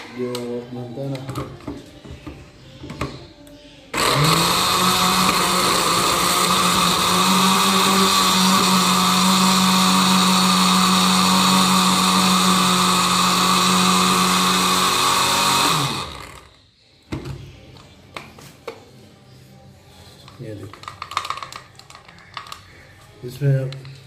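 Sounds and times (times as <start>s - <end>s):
electric grinder motor running: 4.0s - 16.5s.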